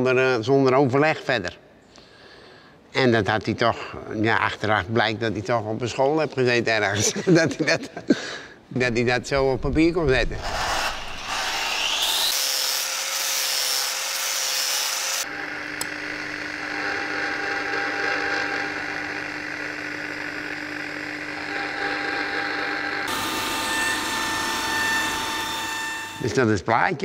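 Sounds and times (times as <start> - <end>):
grinding wheel motor humming: 15.2 - 26.3.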